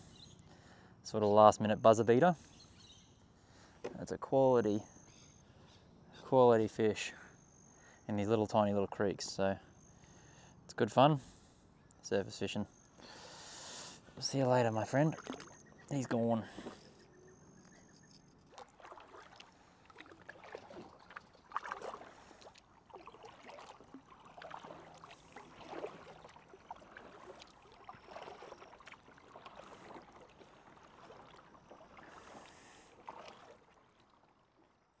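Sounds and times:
creek water lapping and gurgling: 12.7 - 35.0
water splash: 14.8 - 15.7, 18.5 - 34.3.

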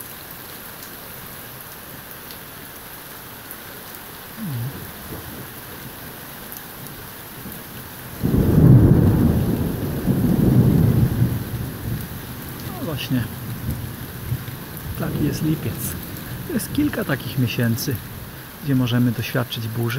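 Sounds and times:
steady rain: 0.0 - 19.9
thunder rolling: 8.2 - 18.2.

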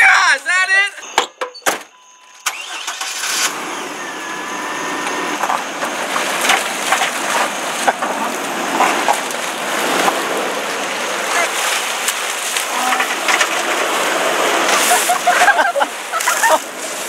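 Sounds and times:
pickup truck driving: 0.0 - 17.0
water sloshing and splashing: 4.1 - 17.0.

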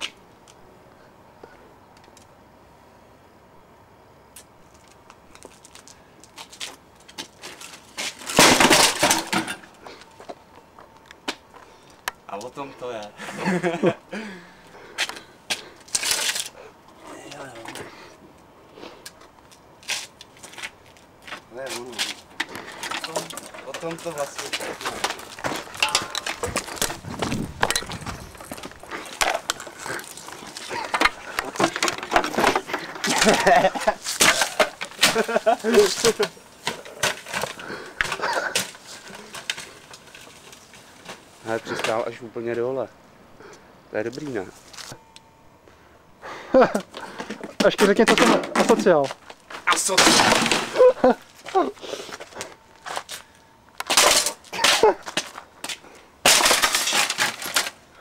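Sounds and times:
loud clattering crash: 8.3 - 9.6, 49.9 - 50.8
footsteps: 19.0 - 33.1.

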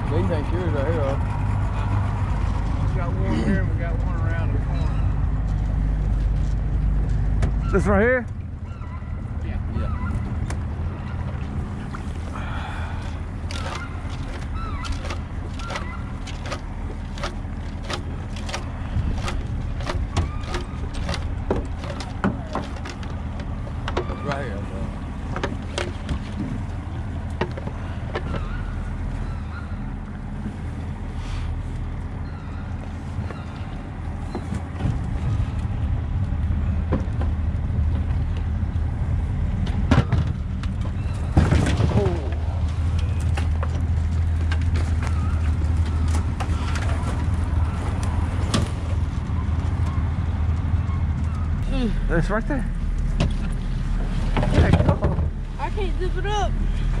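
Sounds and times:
boat motor running: 0.0 - 57.0
engine humming: 0.0 - 57.0
knocks and rattles: 13.4 - 24.3, 39.6 - 50.0, 52.9 - 55.5.

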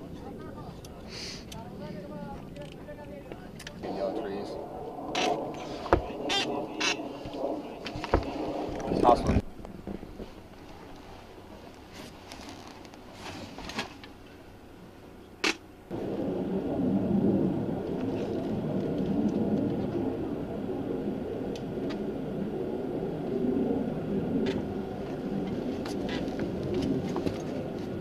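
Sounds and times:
low rumbling noise: 0.0 - 28.0
sharp crack: 15.4 - 15.7.

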